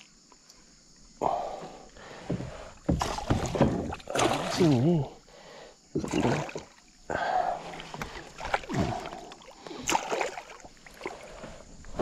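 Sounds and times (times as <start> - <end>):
fish thrashing and splashing water: 2.9 - 5.0, 6.0 - 6.9, 7.6 - 11.4.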